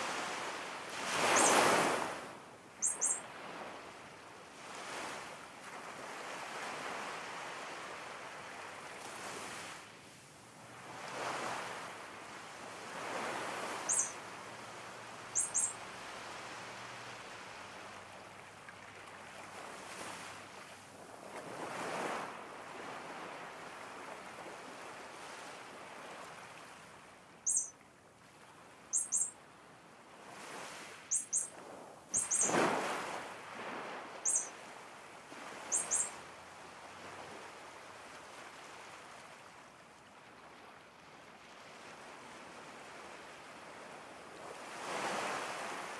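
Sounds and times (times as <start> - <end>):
sea waves washing: 0.0 - 3.9, 30.3 - 38.9
high bird chirps: 1.3 - 1.6, 2.8 - 3.2, 13.9 - 14.2, 15.3 - 15.8, 27.4 - 27.7, 28.9 - 29.4, 31.1 - 31.5, 32.1 - 32.6, 34.2 - 34.6, 35.7 - 36.2.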